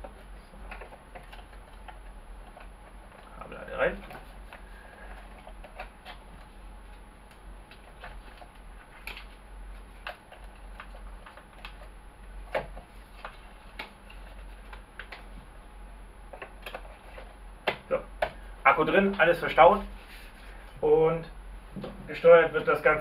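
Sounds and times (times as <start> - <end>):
plastic parts clicking and tapping: 0.0 - 6.5, 10.0 - 15.3, 16.3 - 18.4.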